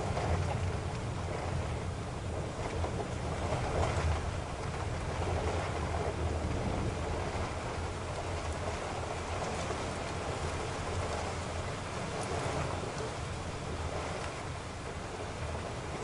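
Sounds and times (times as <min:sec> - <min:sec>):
low rumble of car on road: 0:00.0 - 0:16.0
rain and tyres hissing on wet road: 0:06.1 - 0:09.0.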